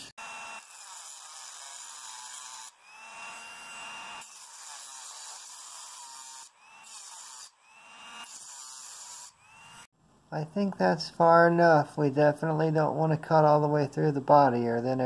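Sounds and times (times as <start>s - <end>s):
rotary tool cutting metal: 0.0s - 9.9s.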